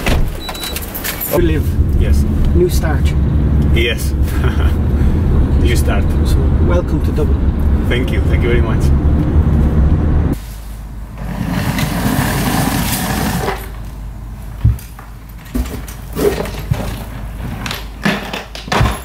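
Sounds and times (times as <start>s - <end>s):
car cabin rumble: 1.3s - 10.4s.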